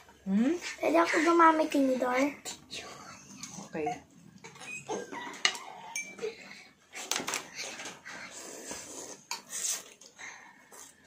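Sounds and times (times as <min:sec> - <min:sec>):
noodles being slurped: 0:07.6 - 0:11.0.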